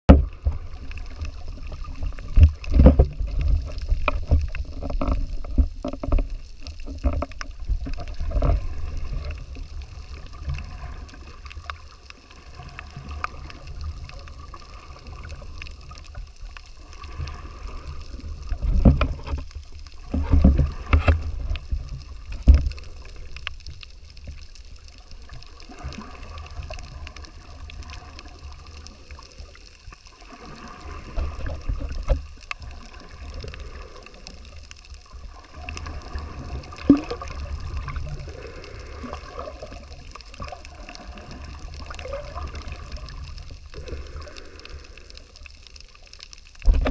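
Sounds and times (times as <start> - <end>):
underwater thumps and knocks: 0.1 - 9.4, 18.5 - 22.9, 31.1 - 32.6, 35.8 - 38.0, 46.6 - 46.9
underwater rumble of moving water: 0.1 - 46.9.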